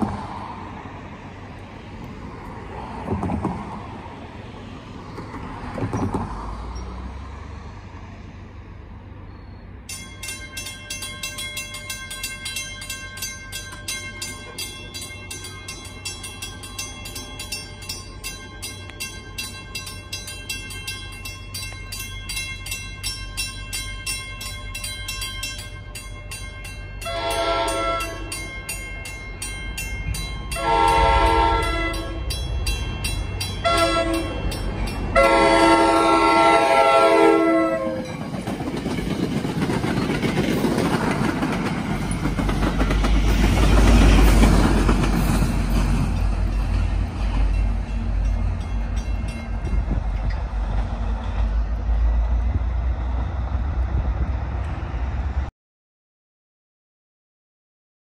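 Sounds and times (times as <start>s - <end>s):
train rumbling past: 0.0s - 55.5s
crossing warning bell ringing: 9.2s - 51.6s
train horn blasts: 27.0s - 28.4s, 30.5s - 32.4s, 33.6s - 38.2s
train wheels clacking: 37.8s - 54.8s.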